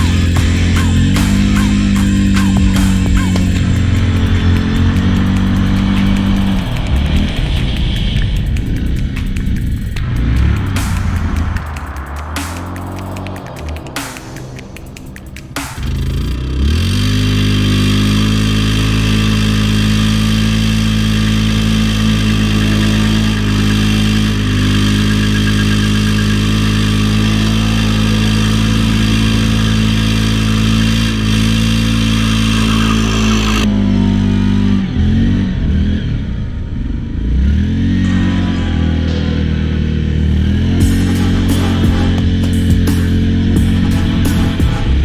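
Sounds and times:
tires spinning hiss: 0.0s - 33.7s
atv engine revving: 0.0s - 45.0s.

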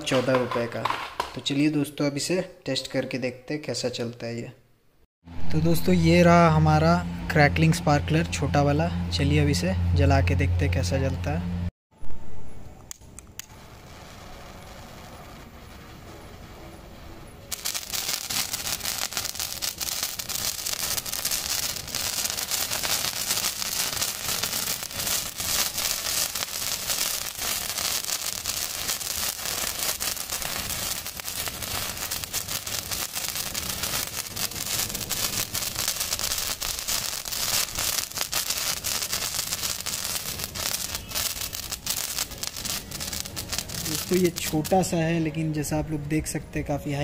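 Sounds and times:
sparkler crackling and hissing: 13.4s - 45.0s.

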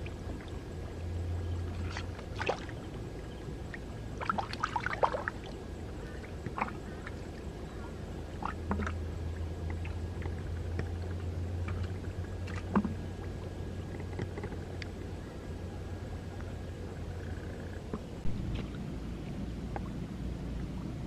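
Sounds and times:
lake water sloshing and lapping: 0.0s - 21.0s
steady low hum: 0.0s - 21.0s
small splashes and clicks: 1.7s - 2.8s, 3.7s - 5.6s, 6.4s - 7.2s, 8.4s - 9.0s, 9.6s - 13.0s.

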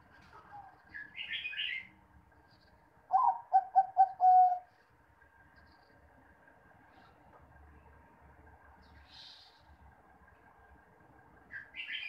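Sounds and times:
dove cooing: 3.1s - 4.7s.

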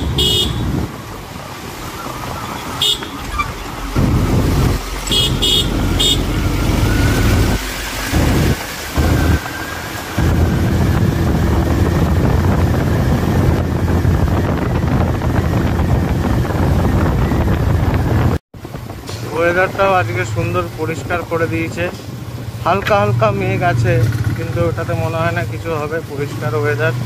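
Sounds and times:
short horn beeps: 0.0s - 0.8s, 2.8s - 3.5s, 5.1s - 6.4s
wind rushing over microphone: 0.0s - 24.7s
motorcycle engine running: 4.0s - 9.5s, 10.1s - 18.4s.

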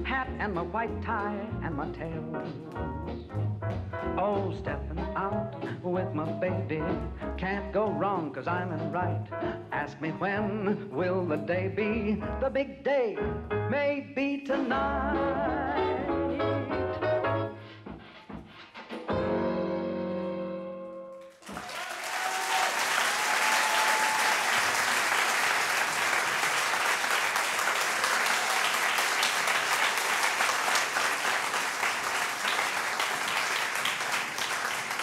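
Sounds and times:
audience applause: 21.3s - 35.0s.

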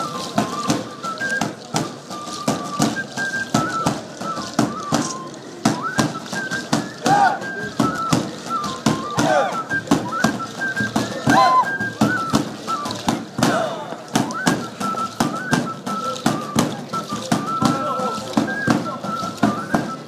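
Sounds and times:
drum beats: 0.0s - 20.0s
flute melody: 0.0s - 20.0s.

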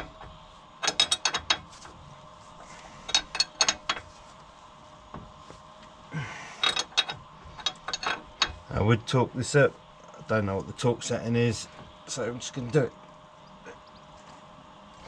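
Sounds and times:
spanner clicking on a nut: 0.8s - 1.7s, 3.1s - 4.0s, 6.6s - 8.6s.

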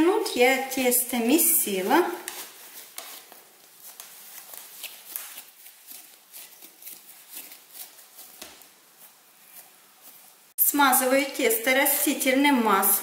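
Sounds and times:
dough kneaded by hand: 0.0s - 10.7s.

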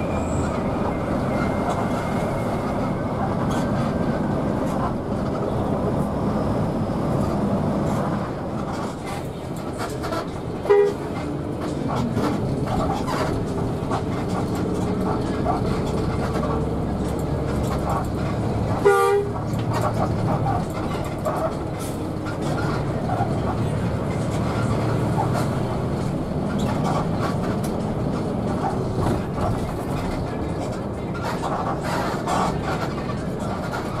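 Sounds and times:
bus engine and road noise: 0.0s - 34.0s
bus horn blasts: 10.6s - 11.2s, 18.7s - 19.5s.

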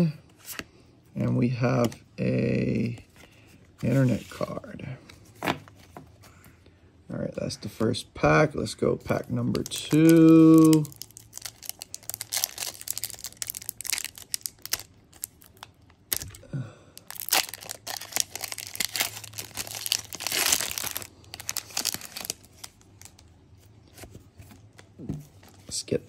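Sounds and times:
foil wrapper crinkling and tearing: 9.5s - 23.2s.

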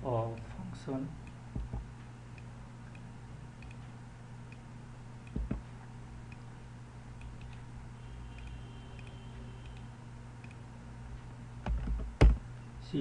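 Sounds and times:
low electrical hum: 0.0s - 13.0s
faint ticks: 8.3s - 10.6s.

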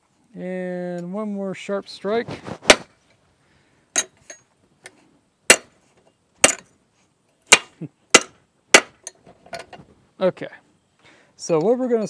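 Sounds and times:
hammer striking metal punch: 5.5s - 5.7s, 6.4s - 6.6s, 7.5s - 9.1s.

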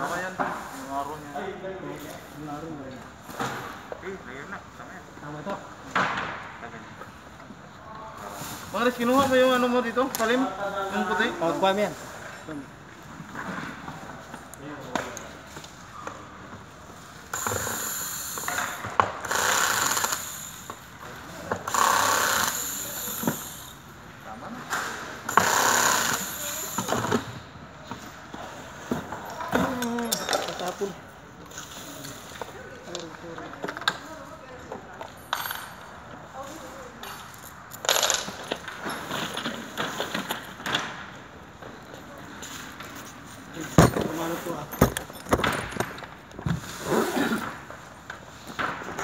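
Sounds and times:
cordless drill running: 19.2s - 20.6s, 21.7s - 23.7s, 25.3s - 26.8s.

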